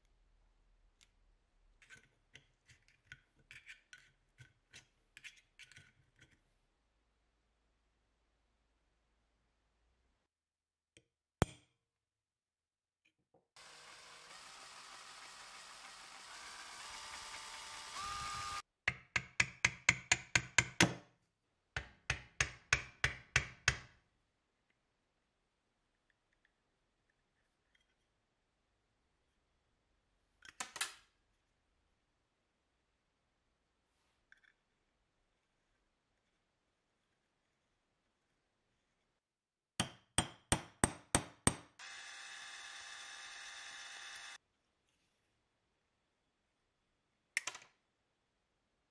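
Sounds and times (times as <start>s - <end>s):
electric drill running: 13.6s - 18.6s, 41.8s - 44.4s.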